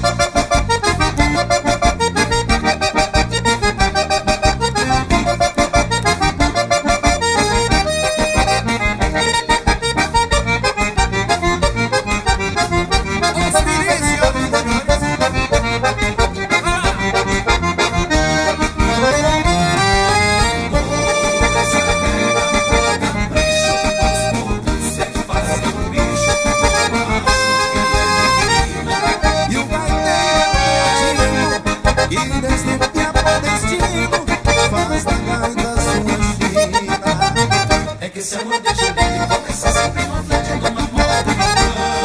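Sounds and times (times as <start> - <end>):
accordions playing fast melody: 0.0 - 42.0.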